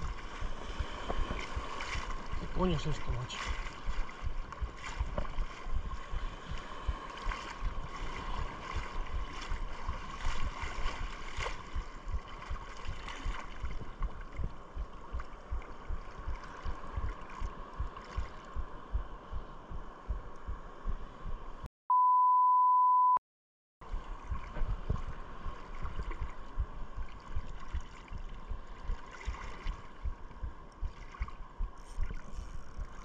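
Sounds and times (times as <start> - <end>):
water sloshing: 0.0 - 19.3, 23.9 - 33.0
wind buffeting microphone: 3.2 - 21.6, 23.9 - 27.8
loud steady beep: 21.9 - 23.2.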